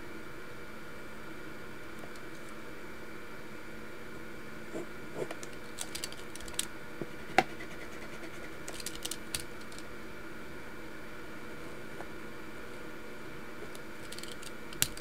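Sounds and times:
faint background hum: 0:00.0 - 0:15.0
pen scratching on paper: 0:07.2 - 0:08.6.

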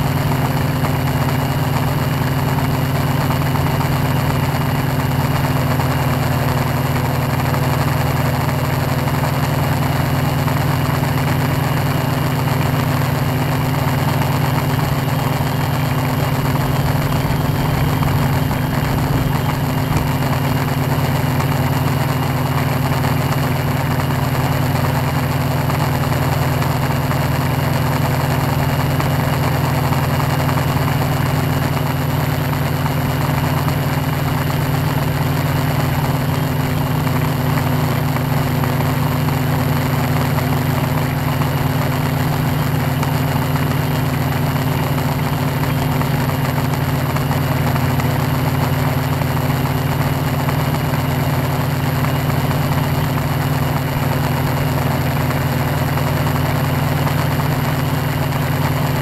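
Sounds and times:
drone propellers humming: 0:12.7 - 0:23.5.

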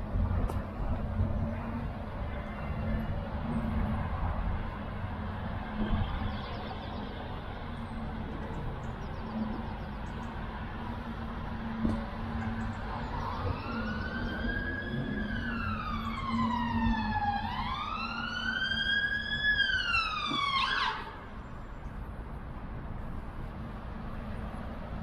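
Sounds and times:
siren wailing: 0:10.8 - 0:21.3.

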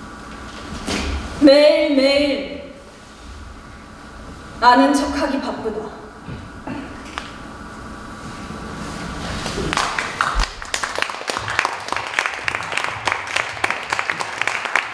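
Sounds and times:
audience applause: 0:09.6 - 0:14.9.

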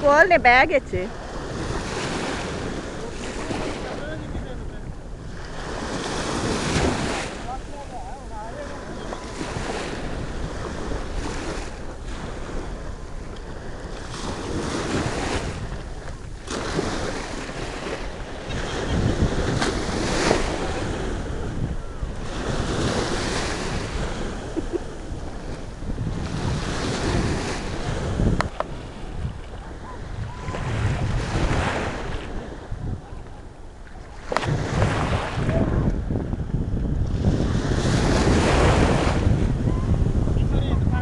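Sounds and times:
wind gusting over microphone: 0:00.0 - 0:41.0.

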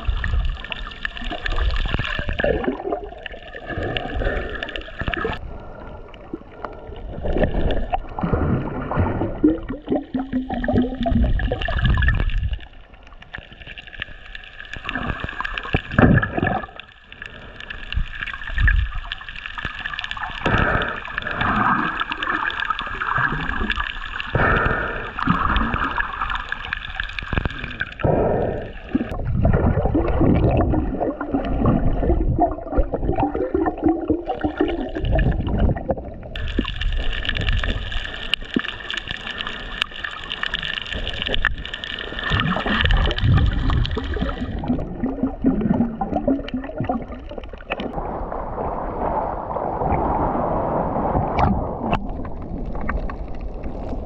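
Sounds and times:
bubbles: 0:00.0 - 0:54.0
water gurgling and sloshing underwater: 0:00.0 - 0:54.0.

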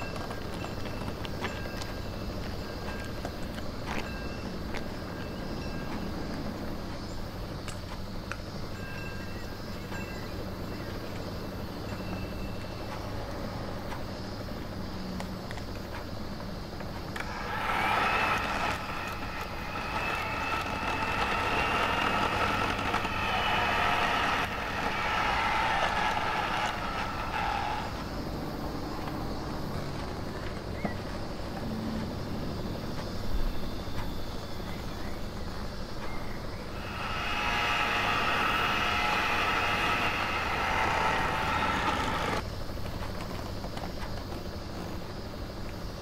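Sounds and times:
electric hand mixer whining: 0:17.2 - 0:28.2, 0:36.7 - 0:42.4.

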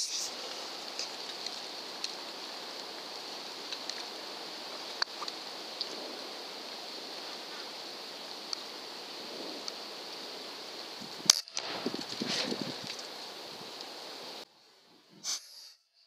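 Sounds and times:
steady background hiss: 0:00.0 - 0:15.8
faint clicks: 0:00.4 - 0:02.9, 0:03.6 - 0:04.1, 0:04.9 - 0:06.0, 0:08.5 - 0:08.7, 0:09.6 - 0:09.8.

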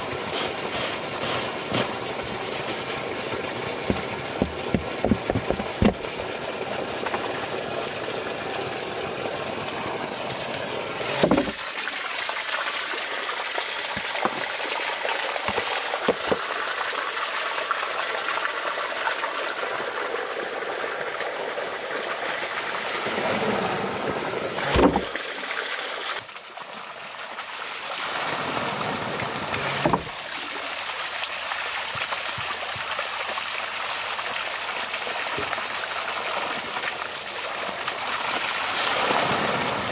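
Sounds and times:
water running and pouring: 0:00.0 - 0:39.9
heavy wooden knocks: 0:03.8 - 0:06.1, 0:11.2 - 0:11.6, 0:14.0 - 0:14.5.

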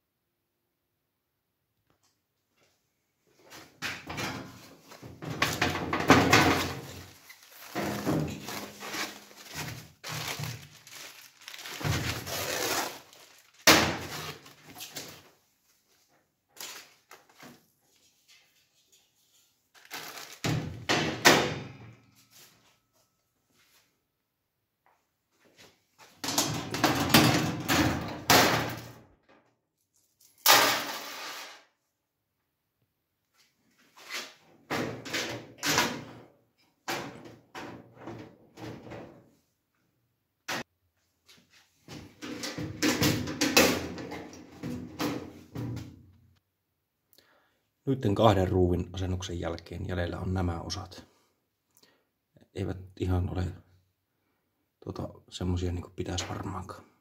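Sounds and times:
foam sheets rustling: 0:04.6 - 0:16.0.

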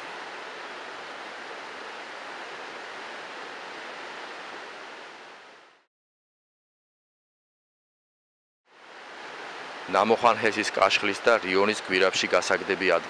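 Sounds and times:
river rushing: 0:00.0 - 0:05.9, 0:08.7 - 0:13.0.

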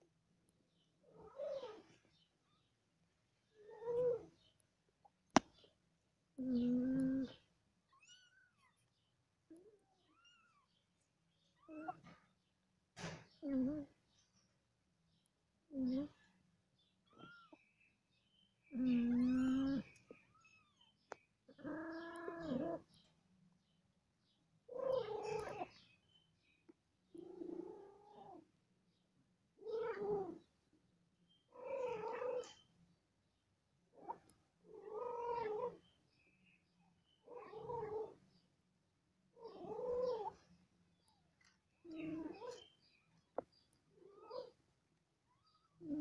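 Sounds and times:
cats meowing: 0:06.4 - 0:08.8, 0:09.5 - 0:10.7, 0:17.0 - 0:17.6, 0:18.7 - 0:20.8, 0:21.5 - 0:22.9, 0:24.7 - 0:25.8, 0:29.6 - 0:30.4, 0:31.5 - 0:32.6, 0:34.0 - 0:35.8, 0:37.2 - 0:38.2, 0:39.4 - 0:40.4, 0:41.8 - 0:42.6.

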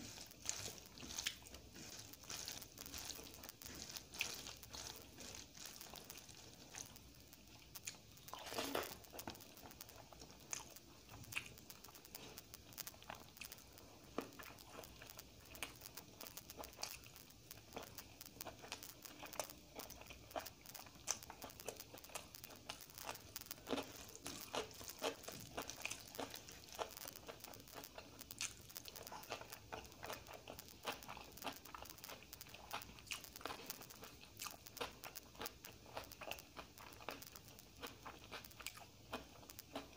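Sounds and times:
chewing crunchy fried food: 0:00.0 - 0:39.9
fingers squishing rice: 0:00.0 - 0:39.9.

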